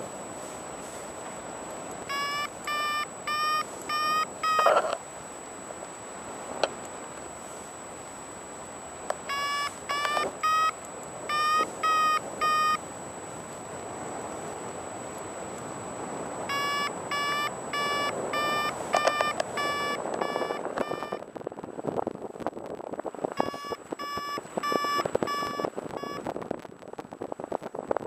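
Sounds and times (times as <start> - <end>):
faint wind rush: 0.0 - 28.0
variometer beeping: 2.1 - 5.0, 9.2 - 12.8, 16.5 - 21.2, 23.4 - 26.3.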